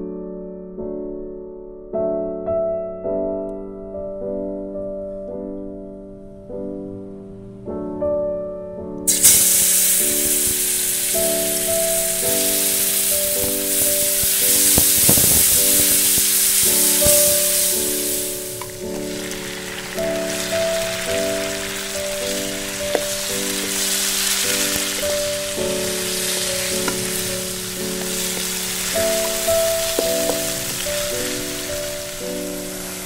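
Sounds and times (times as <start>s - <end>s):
soft piano music: 0.0s - 33.0s
garlic sizzling in oil: 9.1s - 33.0s.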